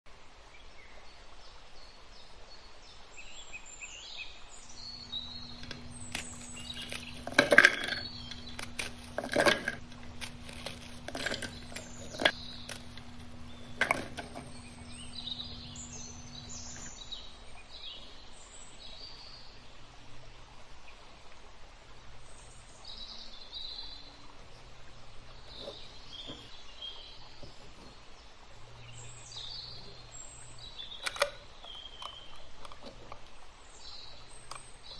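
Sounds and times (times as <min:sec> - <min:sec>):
small birds chirping: 0:00.5 - 0:21.2, 0:22.2 - 0:34.9
steady low hum: 0:04.8 - 0:21.1
sharp clinks and knocks: 0:05.1 - 0:17.0.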